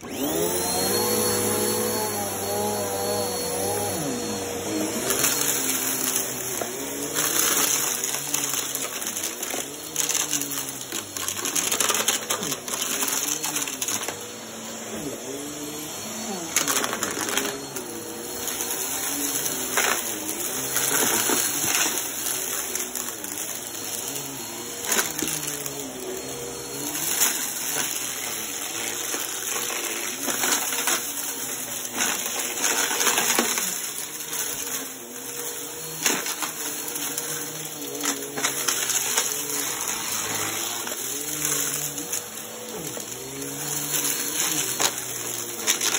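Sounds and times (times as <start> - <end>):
upright vacuum cleaner running: 0.0 - 45.9
debris clicking in vacuum: 5.1 - 14.2.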